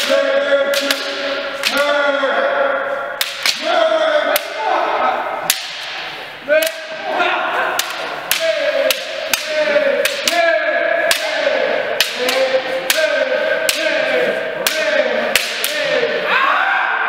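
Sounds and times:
bamboo sword strikes clacking: 0.0s - 1.9s, 3.2s - 3.6s, 5.4s - 7.0s, 7.8s - 16.0s.

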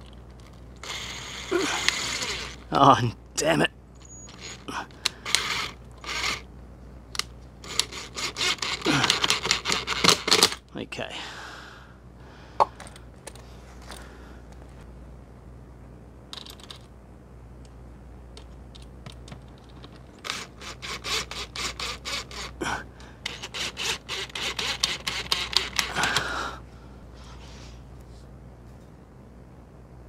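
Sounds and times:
screwdriver clicks and scrapes: 23.2s - 25.9s.

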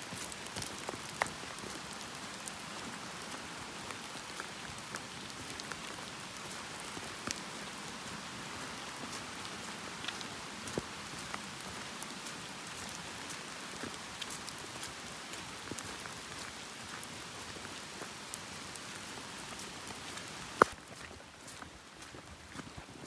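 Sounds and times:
raindrop ticks: 0.1s - 1.8s, 4.3s - 7.4s, 9.6s - 18.4s, 19.0s - 21.6s.

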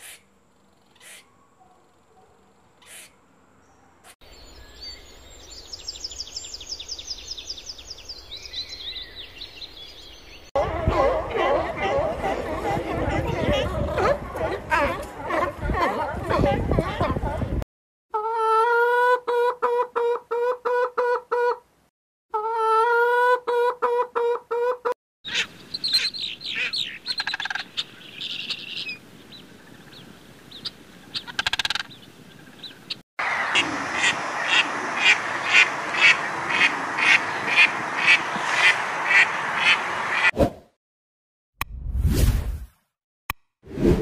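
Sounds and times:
hen calling: 22.3s - 39.8s
goose calling: 22.4s - 29.0s, 30.6s - 40.3s.

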